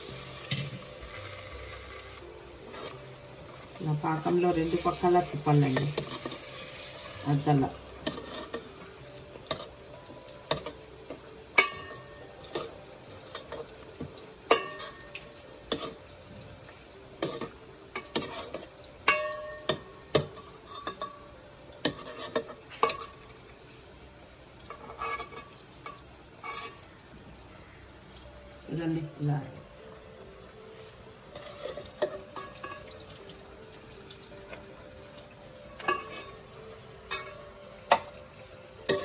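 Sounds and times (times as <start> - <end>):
metal spoon clinking in pot: 11.6 - 13.8, 14.5 - 16.0, 17.2 - 23.2, 31.3 - 33.0, 35.8 - 36.4, 37.1 - 38.1.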